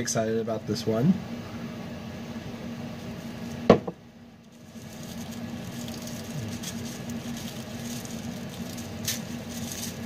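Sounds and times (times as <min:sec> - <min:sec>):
steady low hum: 0:00.0 - 0:10.0
packaging rustling: 0:04.5 - 0:10.0.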